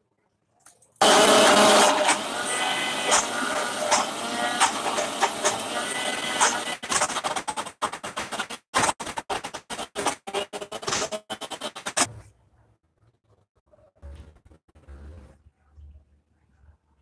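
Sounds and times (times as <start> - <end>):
electric mixer grinder running: 1.0 - 7.5.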